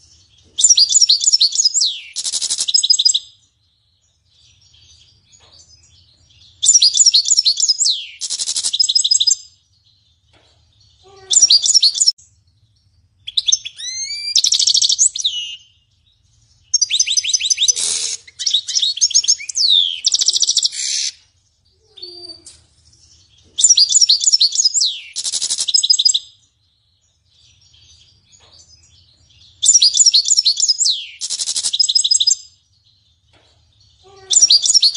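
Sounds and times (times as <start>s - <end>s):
goldfinch singing: 13.2s - 21.2s.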